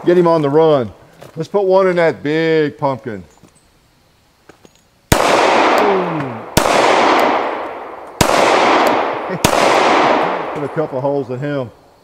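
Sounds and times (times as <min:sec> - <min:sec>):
pistol shots with echo: 0:05.1 - 0:11.3.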